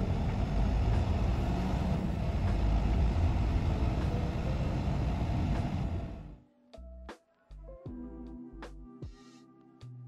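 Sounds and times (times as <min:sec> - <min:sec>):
truck engine and road rumble: 0:00.0 - 0:06.4.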